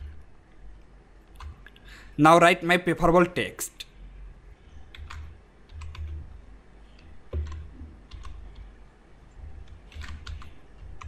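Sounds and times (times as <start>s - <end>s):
computer keyboard keys clicking: 4.9s - 6.2s, 7.0s - 8.7s, 9.6s - 11.0s.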